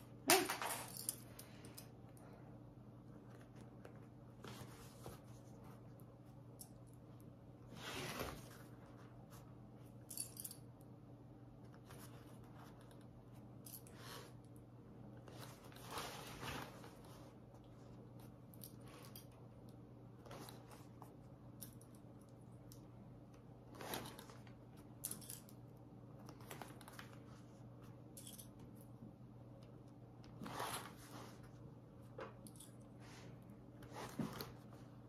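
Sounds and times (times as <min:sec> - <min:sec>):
vinyl material rustling: 0:03.0 - 0:06.4, 0:15.1 - 0:18.1.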